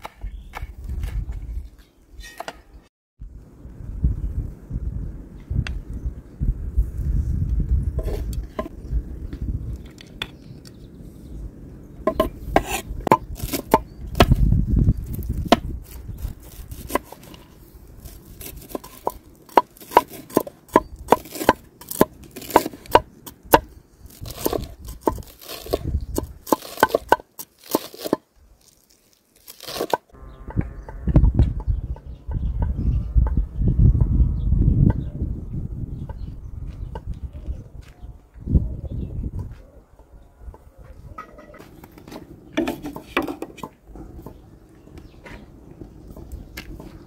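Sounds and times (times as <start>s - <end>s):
nut pieces crunching: 24.1s - 30.1s.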